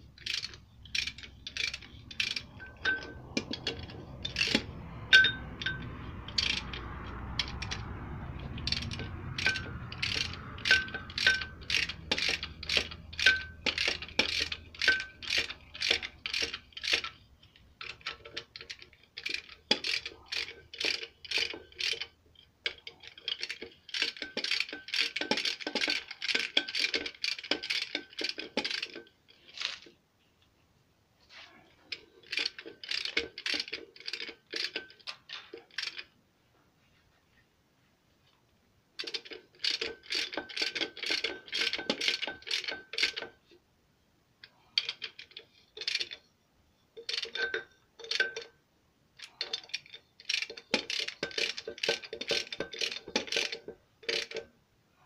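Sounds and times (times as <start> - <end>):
socket ratchet wrench clicking: 0.2 - 22.1, 39.0 - 43.3, 44.8 - 46.2, 49.2 - 54.4.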